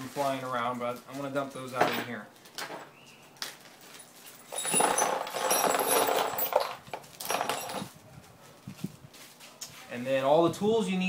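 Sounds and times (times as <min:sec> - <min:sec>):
metal bolts clattering into box: 0:04.5 - 0:07.9.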